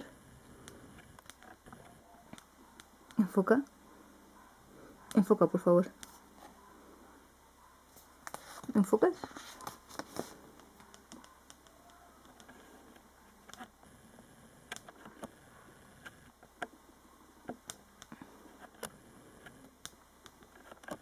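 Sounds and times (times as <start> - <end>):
handling clicks and taps: 9.6 - 13.7, 17.4 - 21.0.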